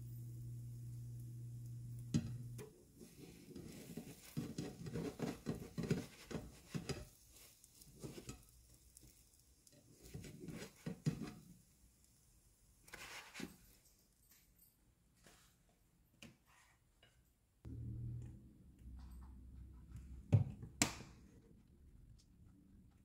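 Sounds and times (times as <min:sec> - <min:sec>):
spatula scraping a frying pan: 0:02.9 - 0:11.5.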